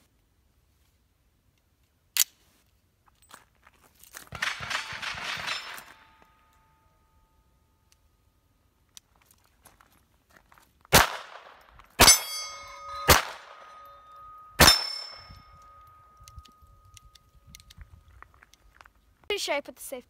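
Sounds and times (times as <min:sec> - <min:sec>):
steel targets ringing: 0:04.3 - 0:07.7, 0:12.0 - 0:17.0
pistol shots: 0:10.9 - 0:13.8, 0:14.6 - 0:15.3.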